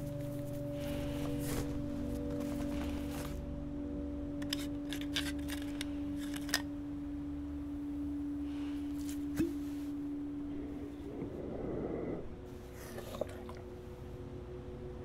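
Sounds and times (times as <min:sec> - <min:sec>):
low drone tone: 0:00.0 - 0:15.0
screw caps clicking: 0:04.4 - 0:06.6.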